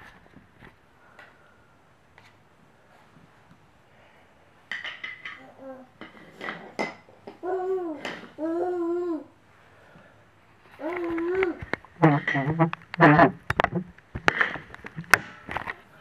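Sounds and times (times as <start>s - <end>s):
baby babbling: 5.4s - 6.0s, 7.4s - 9.4s, 10.8s - 11.6s
baby vocal sound: 5.4s - 6.0s, 7.3s - 9.4s, 10.7s - 11.7s.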